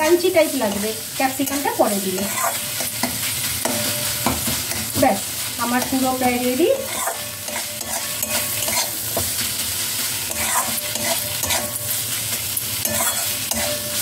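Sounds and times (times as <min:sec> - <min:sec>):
food sizzling frying: 0:00.0 - 0:14.0
metal spatula scraping pan: 0:00.7 - 0:05.0, 0:05.7 - 0:14.0.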